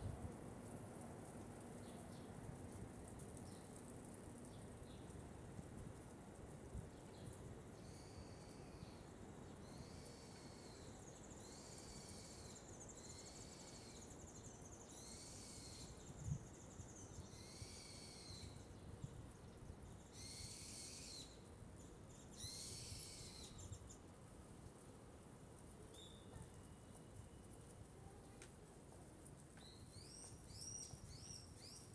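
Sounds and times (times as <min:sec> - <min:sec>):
bird chirping: 0:07.1 - 0:24.1, 0:29.6 - 0:31.9.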